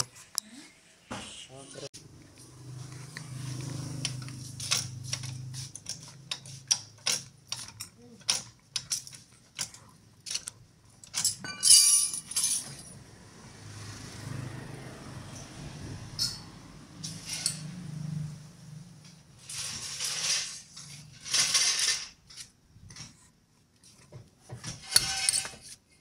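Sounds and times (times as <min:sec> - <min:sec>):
metal tools clinking: 0:04.2 - 0:13.0, 0:24.8 - 0:25.7.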